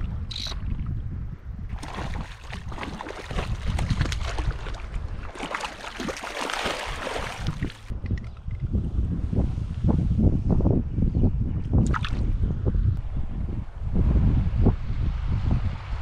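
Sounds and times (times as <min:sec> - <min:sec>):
wind buffeting microphone: 0:00.0 - 0:16.0
fish splashing in water: 0:01.7 - 0:07.9.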